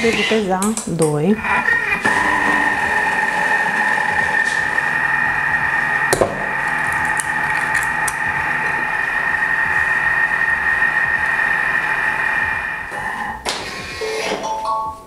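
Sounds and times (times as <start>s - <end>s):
kitchen appliance motor tone: 0.0s - 14.7s
appliance clicks: 0.4s - 3.8s.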